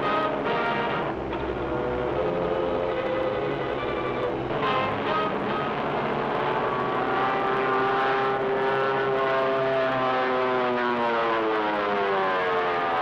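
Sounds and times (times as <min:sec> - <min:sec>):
propeller plane engines droning: 0:00.0 - 0:13.0.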